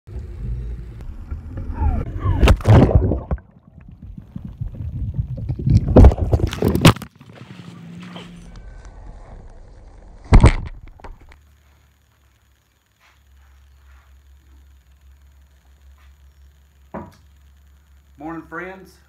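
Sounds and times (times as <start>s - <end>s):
water splashing and gurgling: 2.2s - 7.6s.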